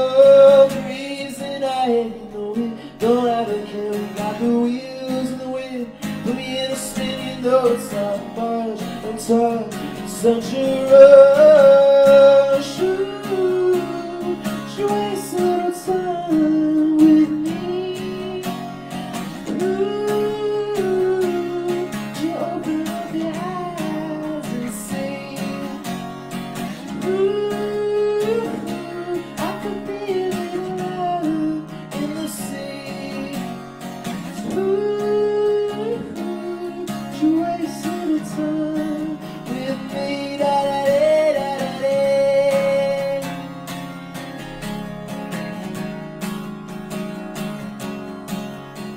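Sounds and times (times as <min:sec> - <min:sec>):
man singing long notes: 0:00.0 - 0:18.7, 0:19.4 - 0:25.9, 0:26.9 - 0:33.5, 0:34.3 - 0:43.4
acoustic guitar strummed: 0:00.0 - 0:48.9.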